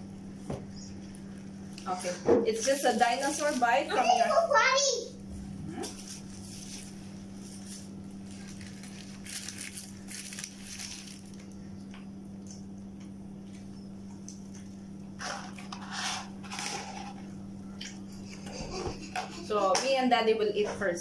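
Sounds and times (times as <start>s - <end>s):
steady low hum: 0.0s - 21.0s
paper wrapper crinkling: 0.9s - 4.1s, 5.9s - 11.6s.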